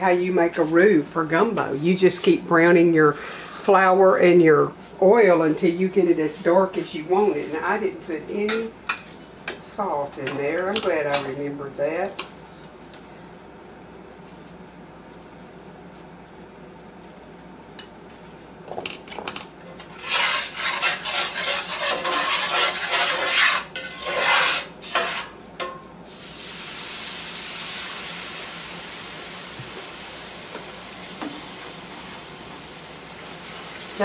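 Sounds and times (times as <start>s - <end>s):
spatula scraping skillet: 19.7s - 25.7s
steady sizzle: 19.7s - 34.0s.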